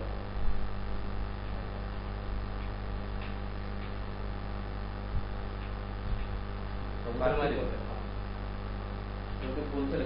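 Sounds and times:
electrical mains hum: 0.0s - 10.0s
low hiss: 0.0s - 10.0s
faint ticks: 2.5s - 4.0s.

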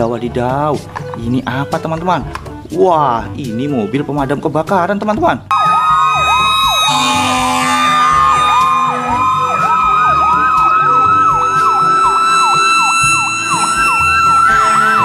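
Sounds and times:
siren yelping: 5.5s - 15.0s
steady high tone: 5.5s - 15.0s.

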